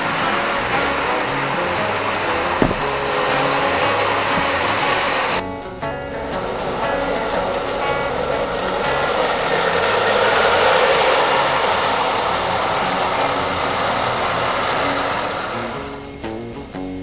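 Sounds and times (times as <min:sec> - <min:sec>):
toy train cars rolling on metal track: 0:00.0 - 0:16.4.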